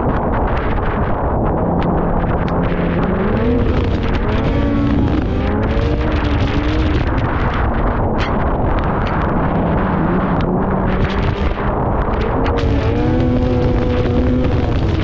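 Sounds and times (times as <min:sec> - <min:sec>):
snowmobile engine running: 0:00.0 - 0:15.0
wind noise on microphone: 0:00.0 - 0:15.0.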